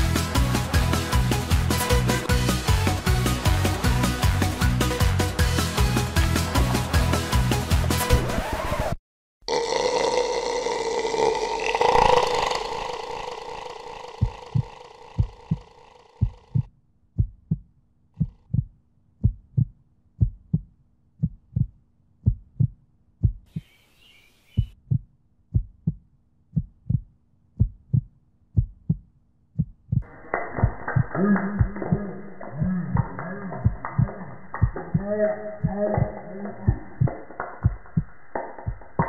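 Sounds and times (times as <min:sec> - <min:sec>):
faint hum: 0:12.0 - 0:16.7
heartbeat thumps: 0:14.2 - 0:23.6, 0:24.6 - 0:35.0, 0:35.6 - 0:39.0.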